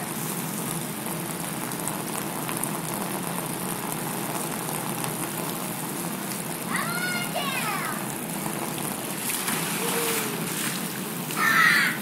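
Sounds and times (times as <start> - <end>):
hose spray on vinyl slide: 9.2 - 11.5.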